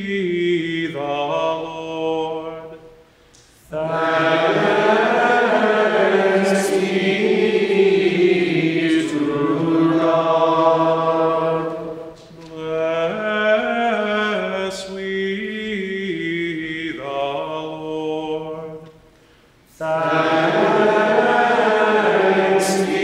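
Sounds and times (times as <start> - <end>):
choir singing chant: 3.7 - 15.1, 19.7 - 23.0.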